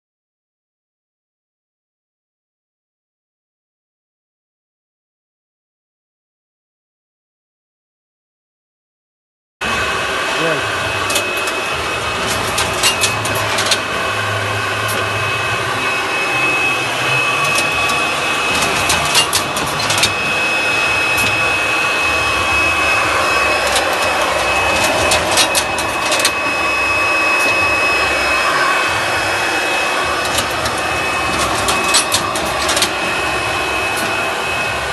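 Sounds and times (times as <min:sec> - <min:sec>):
machine humming and whining: 0:09.6 - 0:34.9
sharp mechanical clacks: 0:11.0 - 0:14.0, 0:17.2 - 0:21.6, 0:22.5 - 0:27.8, 0:30.0 - 0:33.1.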